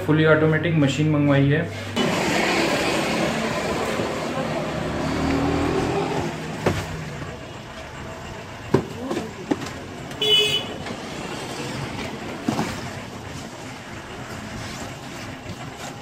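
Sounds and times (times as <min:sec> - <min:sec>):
street traffic: 0:00.0 - 0:16.0
vehicle horn toot: 0:10.2 - 0:10.8.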